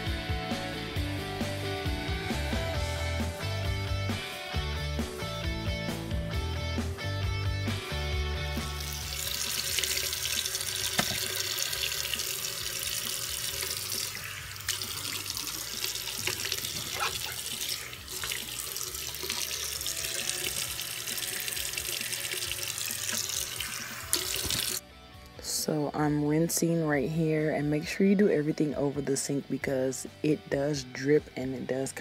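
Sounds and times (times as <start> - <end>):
background music: 0.0 - 32.0
tap water splashing into sink: 8.8 - 24.8.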